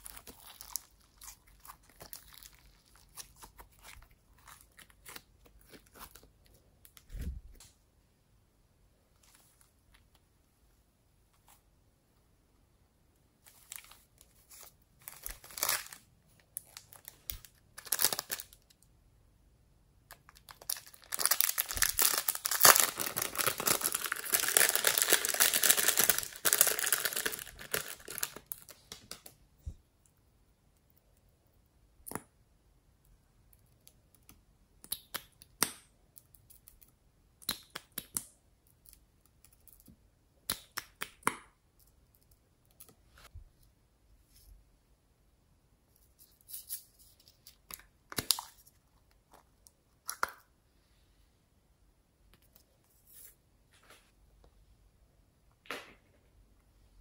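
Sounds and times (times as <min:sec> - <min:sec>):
plastic bag crinkling: 0:14.6 - 0:16.0, 0:16.6 - 0:18.6, 0:20.4 - 0:28.8.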